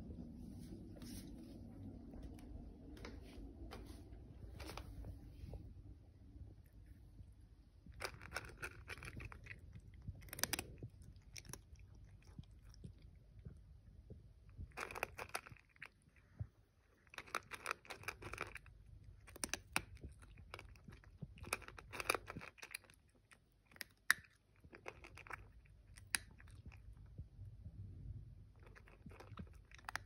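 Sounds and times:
cat crunching dry kibble: 0:06.5 - 0:27.6, 0:28.4 - 0:30.0.

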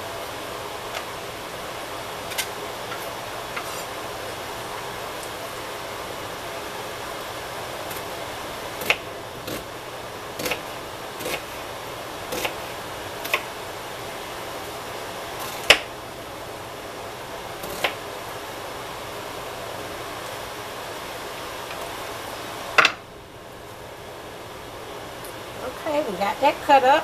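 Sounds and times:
steady background hum: 0:00.0 - 0:27.0
knife chopping on wooden board: 0:10.4 - 0:10.6.

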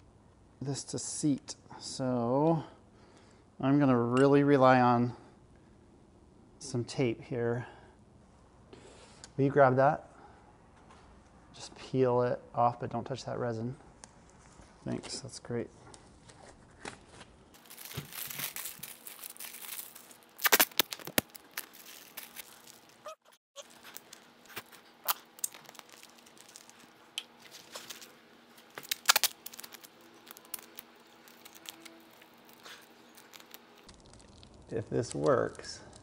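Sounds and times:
duct tape tearing and crackling: 0:17.6 - 0:23.0, 0:23.6 - 0:26.9, 0:27.5 - 0:35.6.

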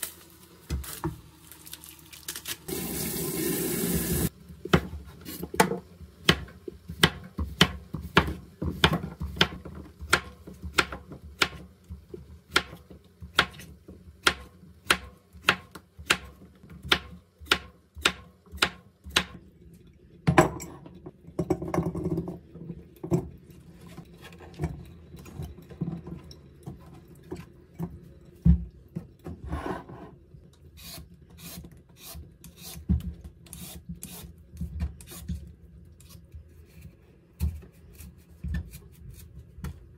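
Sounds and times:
vegetable peeler scraping: 0:30.8 - 0:32.8.

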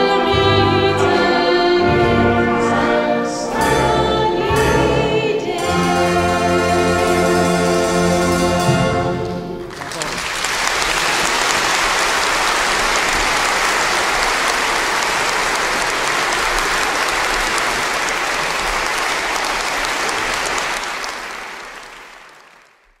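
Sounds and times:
audience applauding: 0:09.6 - 0:23.0.

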